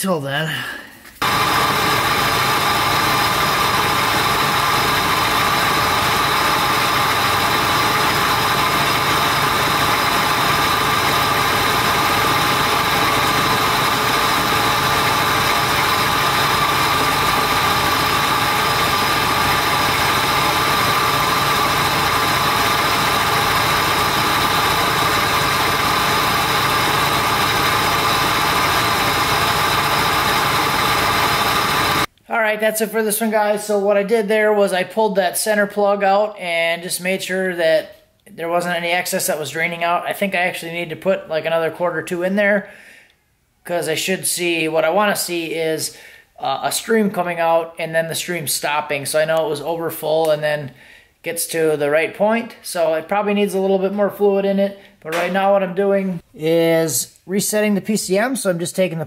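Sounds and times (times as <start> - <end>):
car engine idling: 1.2 - 32.1.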